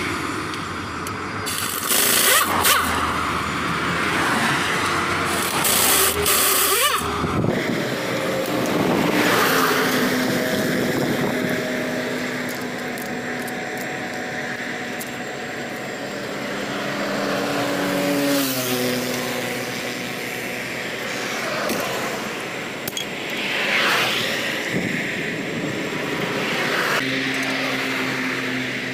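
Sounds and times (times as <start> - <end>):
highway traffic passing: 0.0 - 28.9
pneumatic impact wrench: 1.4 - 3.5, 4.7 - 13.9.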